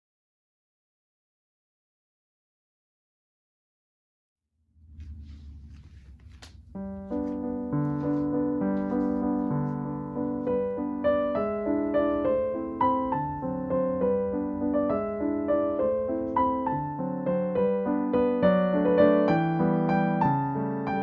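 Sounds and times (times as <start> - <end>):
piano melody: 4.8 - 21.0.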